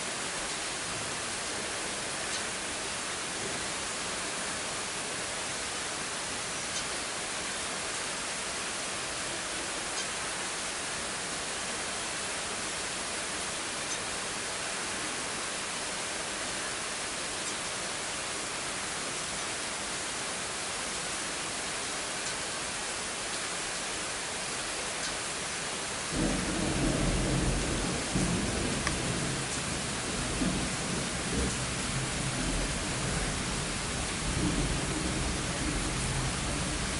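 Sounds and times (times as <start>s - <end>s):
rain hiss: 0.0s - 36.9s.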